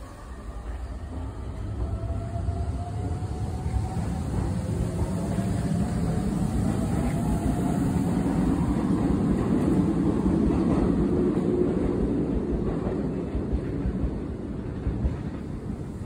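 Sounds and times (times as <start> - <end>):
train rumbling: 0.0 - 16.0.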